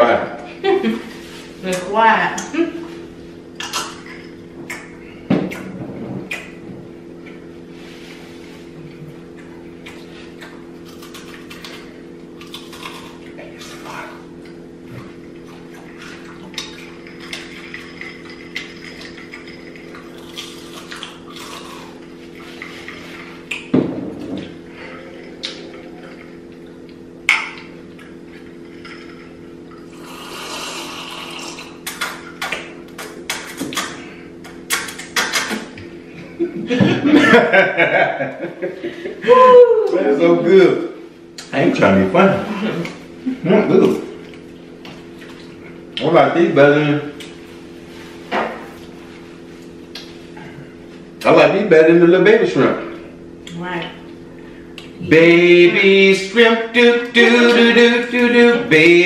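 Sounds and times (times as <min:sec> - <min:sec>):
steady low hum: 0:00.0 - 0:59.0
sipping: 0:07.9 - 0:23.7, 0:24.4 - 0:35.8
chewing and crunching: 0:08.9 - 0:23.7
wet smacks and gulps: 0:49.9 - 0:50.2.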